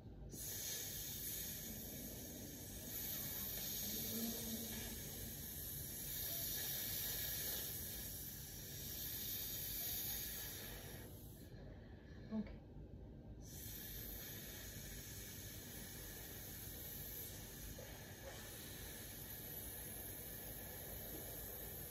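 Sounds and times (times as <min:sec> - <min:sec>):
recording hiss: 0:00.0 - 0:11.6, 0:13.4 - 0:21.9.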